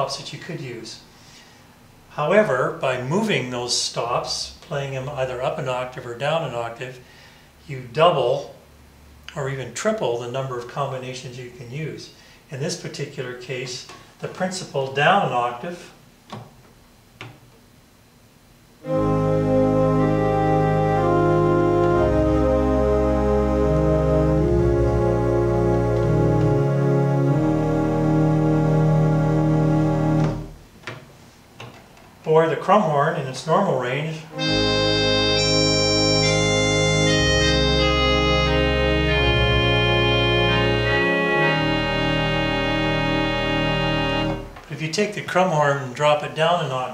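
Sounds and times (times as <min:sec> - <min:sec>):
organ playing sustained chords: 0:18.8 - 0:30.6, 0:34.1 - 0:44.6.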